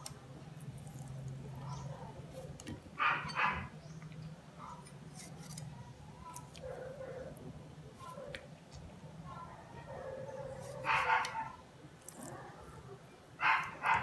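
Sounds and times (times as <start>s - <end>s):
dog barking: 2.4s - 3.7s, 6.6s - 7.4s, 9.7s - 11.6s, 13.4s - 14.0s.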